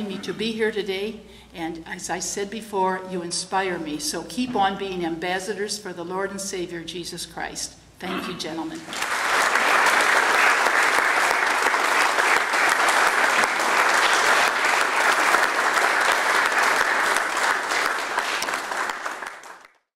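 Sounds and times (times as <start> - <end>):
many hands clapping: 8.8 - 19.9.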